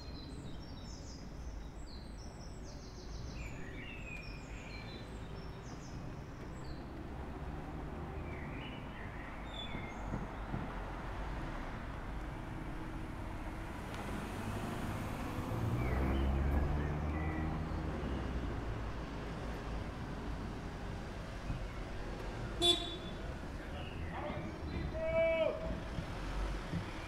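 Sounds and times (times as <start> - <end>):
street traffic rumble: 0.0 - 27.0
van engine revving: 12.5 - 18.9.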